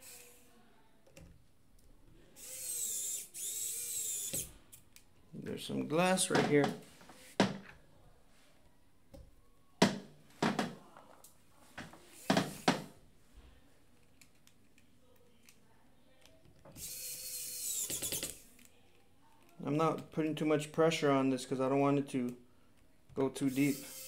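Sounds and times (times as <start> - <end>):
electric screwdriver running: 0.0 - 0.5, 2.4 - 4.5, 16.8 - 18.4, 23.5 - 24.0
clicks and scrapes of small parts: 14.0 - 15.6.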